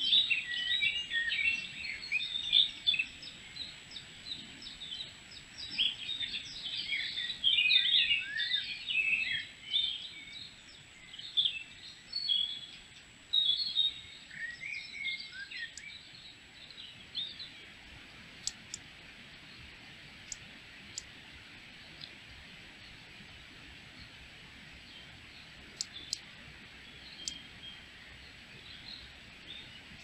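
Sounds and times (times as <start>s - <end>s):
songbirds chirping and singing: 0.0s - 21.1s, 23.9s - 30.0s
sharp clicks: 18.4s - 18.8s, 25.7s - 26.3s.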